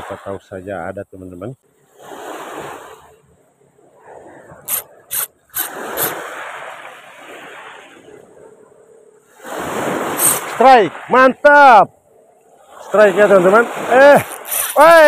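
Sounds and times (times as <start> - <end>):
rod and reel rasping: 4.1 - 6.7, 9.8 - 10.6, 13.5 - 15.0
sharp reel clicks: 4.6 - 6.2, 10.2 - 10.5, 14.2 - 15.0.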